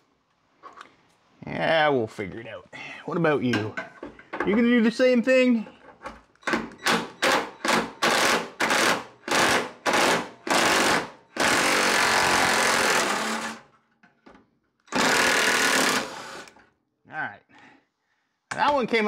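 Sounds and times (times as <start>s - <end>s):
impact wrench hammering on bolt: 6.5s - 13.5s.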